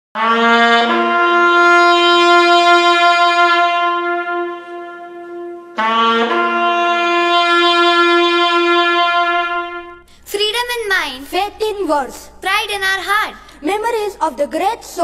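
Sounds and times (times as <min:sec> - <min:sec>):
brass instrument long notes: 0:00.2 - 0:10.4.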